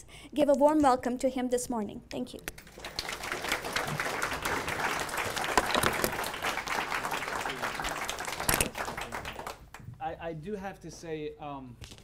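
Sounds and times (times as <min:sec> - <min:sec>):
audience applauding: 0:02.6 - 0:09.8.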